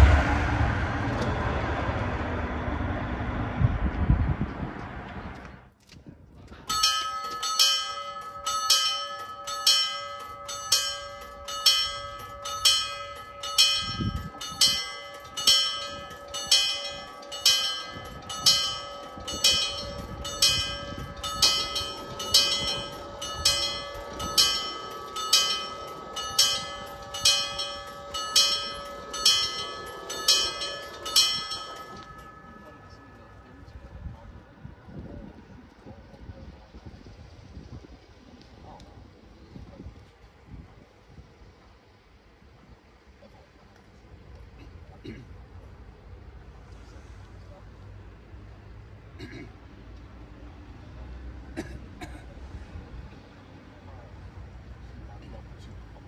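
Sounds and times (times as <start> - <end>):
level crossing warning bell: 6.6 - 35.4.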